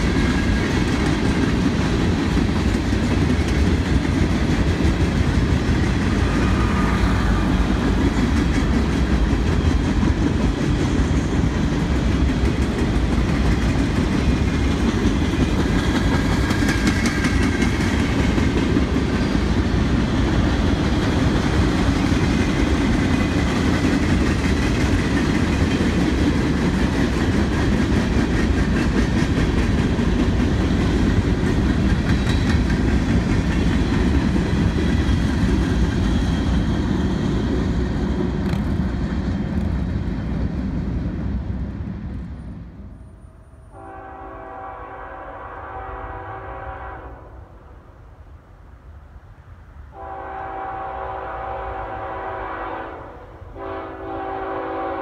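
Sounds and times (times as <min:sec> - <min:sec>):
train wheels rumbling on rail: 0:00.0 - 0:55.0
locomotive horn: 0:43.7 - 0:47.7, 0:49.9 - 0:55.0.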